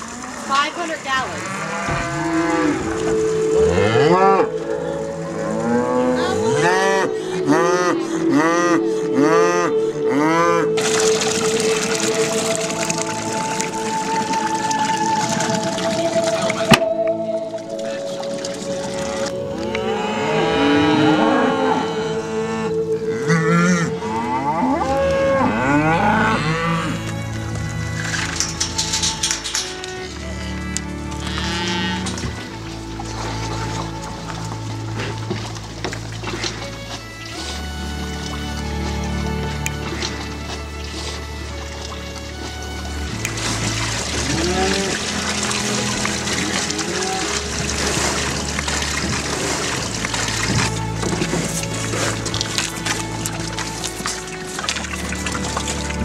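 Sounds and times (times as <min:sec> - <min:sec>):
cattle mooing: 0:00.2 - 0:13.2, 0:17.8 - 0:29.3, 0:30.2 - 0:35.0, 0:43.5 - 0:56.0.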